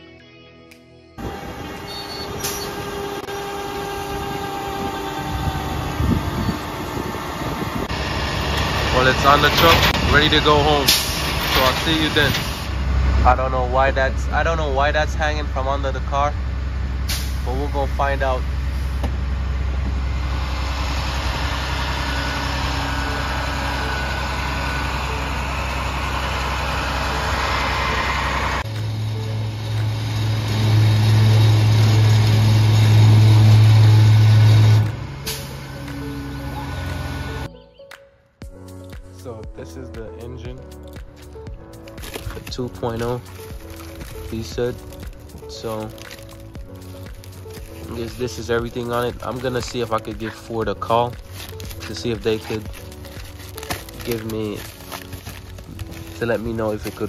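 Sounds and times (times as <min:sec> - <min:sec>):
winch and hydraulics whining: 0:01.2 - 0:13.0, 0:18.4 - 0:37.5
truck engine idling: 0:01.2 - 0:37.5, 0:40.6 - 0:57.0
low rumble: 0:04.0 - 0:37.5.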